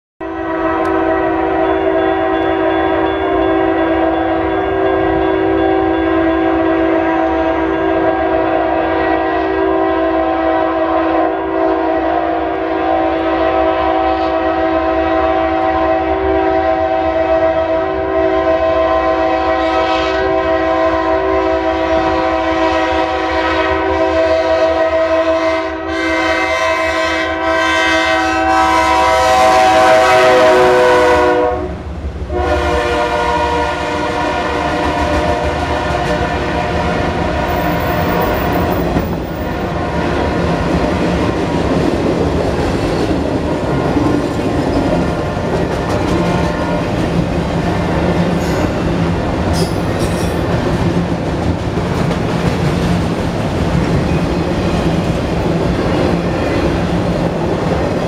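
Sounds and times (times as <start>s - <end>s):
locomotive air horn: 0.2s - 41.4s, 42.7s - 50.0s
train clatter: 34.4s - 58.0s.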